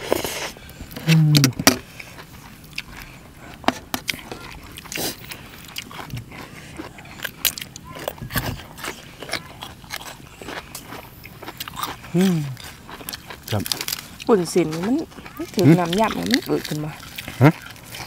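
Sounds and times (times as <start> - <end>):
person humming mm: 1.0 - 1.6
crisp bites and chewing: 1.0 - 3.2, 4.0 - 18.0.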